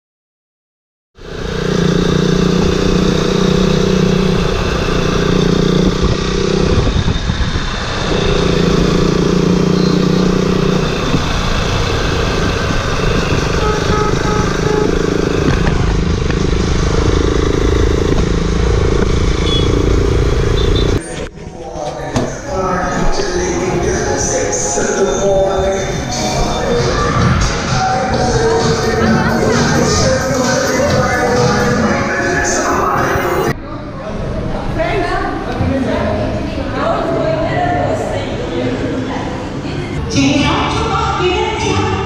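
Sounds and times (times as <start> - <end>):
motorcycle engine droning: 1.2 - 34.0
road noise rush: 1.2 - 42.0.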